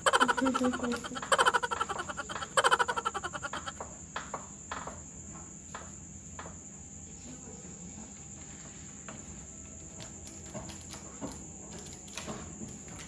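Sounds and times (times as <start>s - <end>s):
rapid pulsing croak-like trills: 0.0s - 6.5s.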